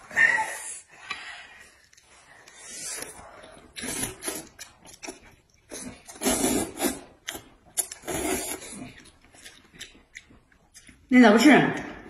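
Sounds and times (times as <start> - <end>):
noodles being slurped: 1.8 - 10.9
wet chewing and lip smacks: 1.8 - 11.1.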